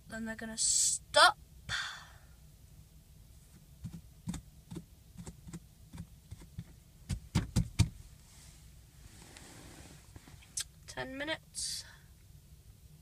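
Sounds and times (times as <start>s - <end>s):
heavier knocks: 6.6s - 7.9s.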